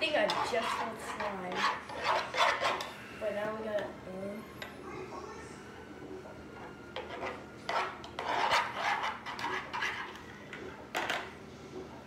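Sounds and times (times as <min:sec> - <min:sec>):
metal spoon scraping plastic bowl: 0:00.0 - 0:02.9, 0:07.0 - 0:10.3.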